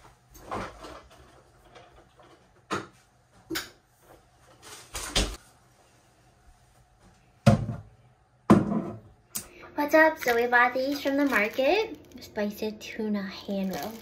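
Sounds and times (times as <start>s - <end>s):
kitchen items knocking and clunking: 7.4s - 9.1s.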